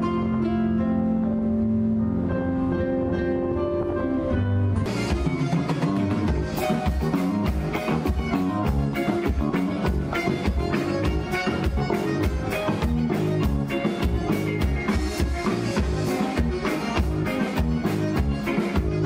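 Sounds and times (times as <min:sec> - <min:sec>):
electric bass: 0:00.0 - 0:19.0
electric guitar: 0:00.0 - 0:19.0
piano accordion: 0:00.0 - 0:19.0
drum kit beat: 0:04.9 - 0:19.0.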